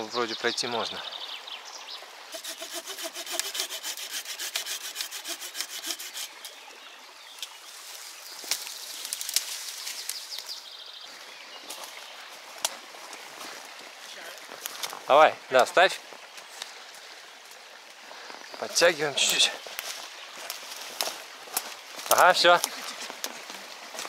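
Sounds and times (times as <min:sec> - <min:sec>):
branches and brush rustling: 0:00.0 - 0:24.0
rapid rhythmic scraping: 0:02.3 - 0:06.4.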